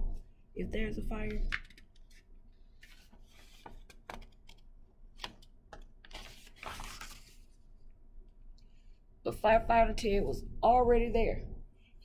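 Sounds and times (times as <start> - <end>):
page being flipped: 1.5 - 7.6
paper pages rustling: 1.5 - 7.7.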